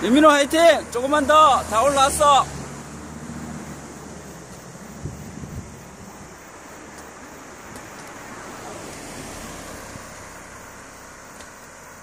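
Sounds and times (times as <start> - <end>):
car passing: 0.0 - 12.0
wind on microphone: 4.8 - 6.4.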